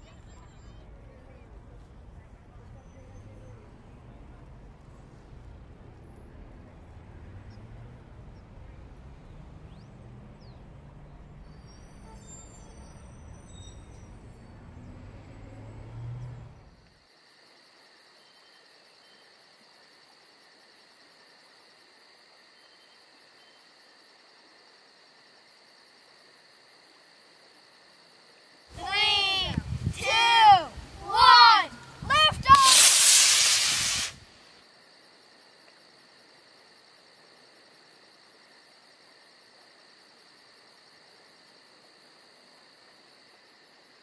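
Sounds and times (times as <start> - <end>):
insects chirping: 9.4 - 44.0.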